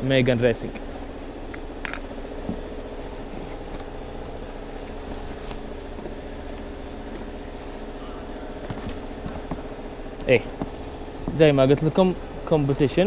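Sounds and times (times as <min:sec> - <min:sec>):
engine idling: 0:00.0 - 0:13.0
plastic wrap and cardboard rustling: 0:02.6 - 0:13.0.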